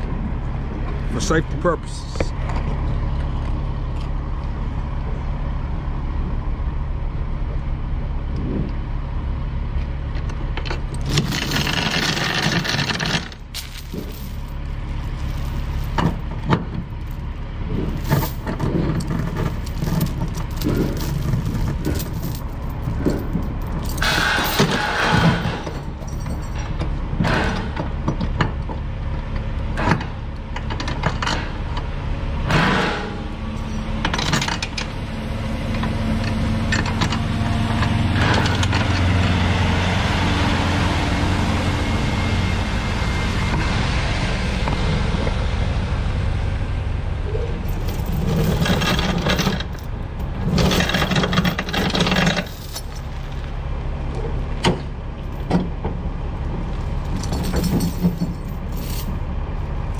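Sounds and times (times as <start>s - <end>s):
heavy truck engine passing: 0.0s - 59.9s
steel chains rattling and clanking: 10.9s - 27.8s, 32.7s - 34.9s, 47.6s - 53.6s, 56.6s - 59.7s.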